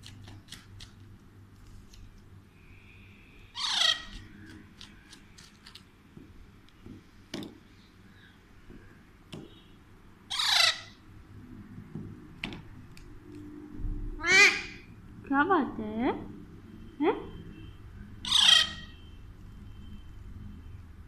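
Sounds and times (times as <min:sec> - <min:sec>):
parakeet harsh squawks: 0:03.5 - 0:04.4, 0:10.3 - 0:11.0, 0:14.2 - 0:14.9, 0:18.2 - 0:19.0.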